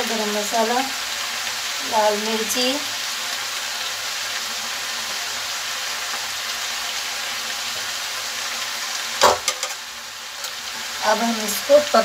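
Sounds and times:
food sizzling in a pan: 0.0s - 12.0s
sharp knock: 9.2s - 9.7s.

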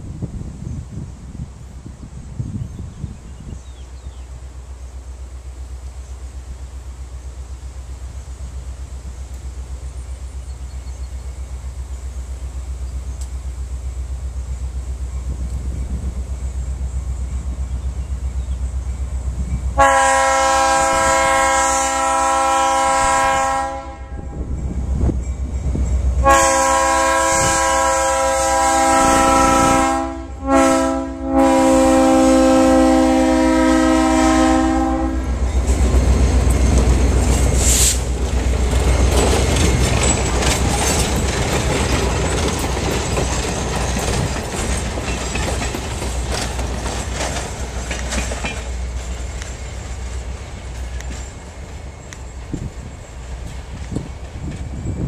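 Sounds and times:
train rumbling past: 0.0s - 55.0s
locomotive air horn blasts: 19.8s - 24.6s, 26.2s - 35.4s
wheels clicking over rail joints: 35.4s - 54.9s.

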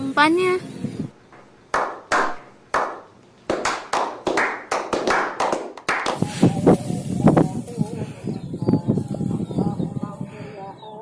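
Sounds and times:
people clapping: 1.7s - 6.5s.

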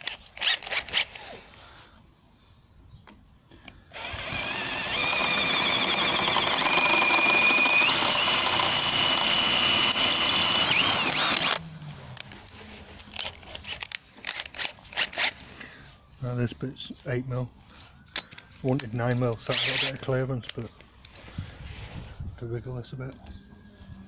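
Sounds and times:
cordless drill whining: 0.0s - 1.4s, 3.9s - 11.6s, 19.4s - 20.1s.

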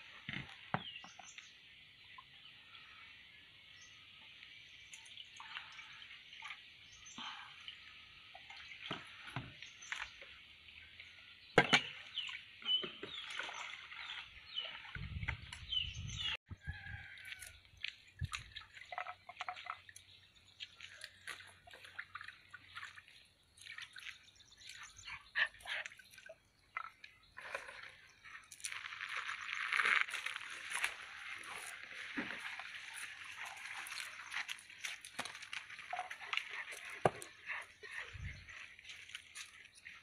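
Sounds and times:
water splashing and sloshing: 0.0s - 40.0s.

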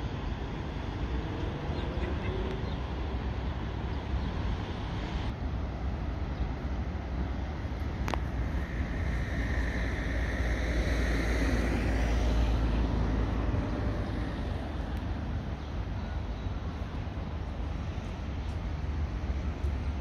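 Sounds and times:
steady low traffic rumble: 0.0s - 20.0s
vehicle passing close by: 8.3s - 15.4s.

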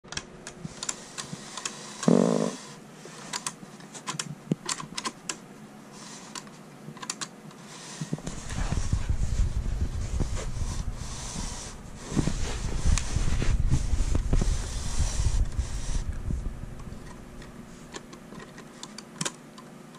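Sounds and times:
low rumble: 8.3s - 17.8s.

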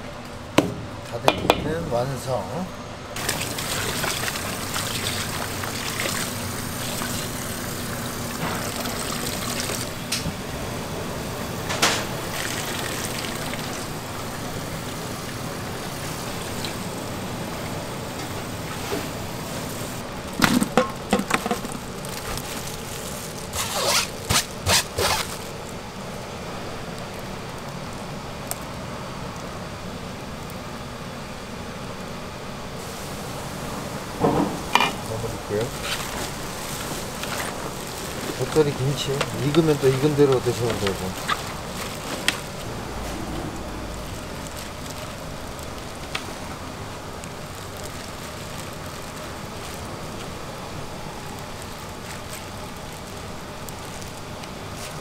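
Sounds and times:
knocks on metal basin: 0.6s - 1.8s
tap water running into basin: 3.2s - 10.2s, 12.2s - 17.0s.

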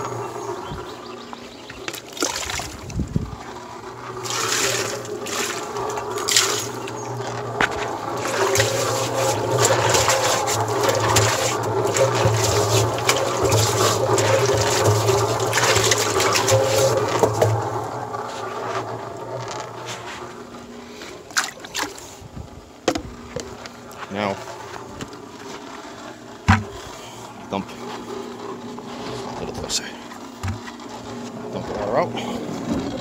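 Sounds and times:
water sloshing in mixer drum: 0.0s - 33.0s
sharp knocks: 26.5s - 26.8s.

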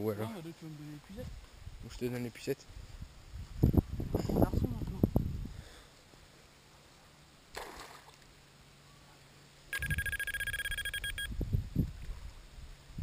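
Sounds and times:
bite alarm high beeps: 9.7s - 11.3s.

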